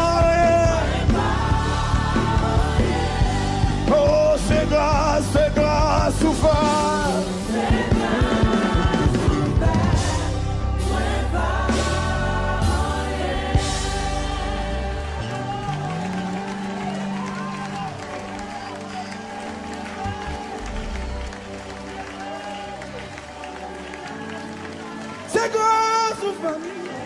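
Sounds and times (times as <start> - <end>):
band with low bass: 0.0 - 15.9
voices singing worship song: 0.0 - 17.3.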